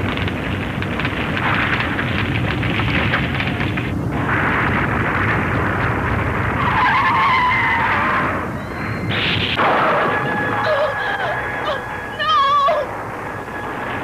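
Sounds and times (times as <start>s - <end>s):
rumbling of collapsing debris: 0.0s - 14.0s
short crash: 4.2s - 10.7s
wavering high-pitched cry: 10.4s - 12.9s.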